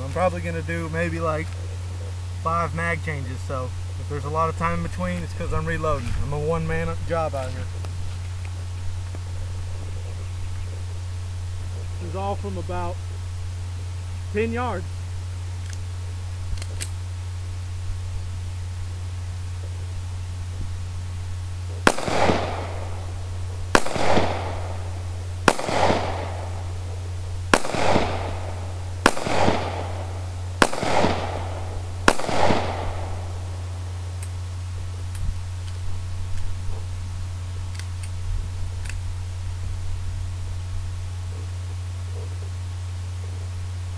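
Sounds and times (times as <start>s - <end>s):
pistol shots with echo: 21.8s - 34.0s
faint clicks: 34.2s - 34.4s, 37.7s - 38.2s.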